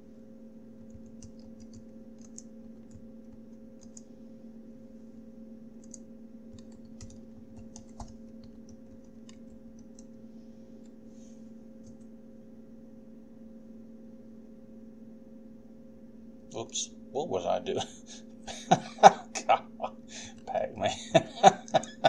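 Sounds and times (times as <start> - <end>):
steady low hum: 0.0 - 22.0
computer keyboard keys clicking: 0.8 - 4.1, 5.8 - 10.2.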